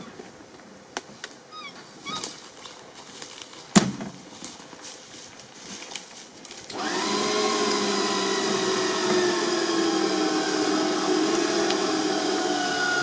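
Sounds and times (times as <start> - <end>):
electric winch whining: 6.7 - 13.0.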